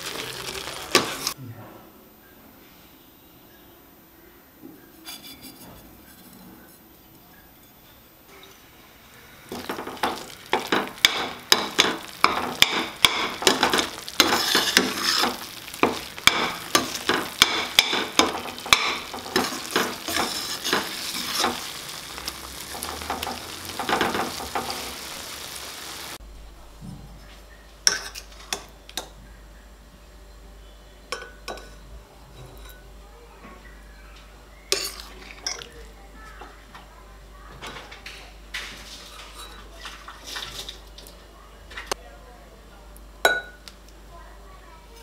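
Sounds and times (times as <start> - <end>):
paste sizzling: 0.0 - 1.4, 9.4 - 26.2
ladle scraping a metal pan: 13.4 - 21.9.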